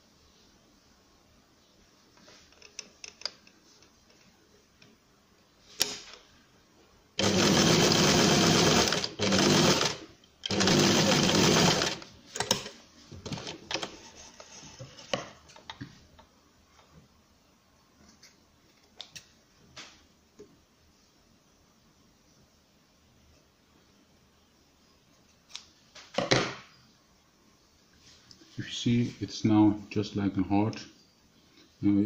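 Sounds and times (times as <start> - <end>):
sewing machine stitching: 7.2 - 12.7.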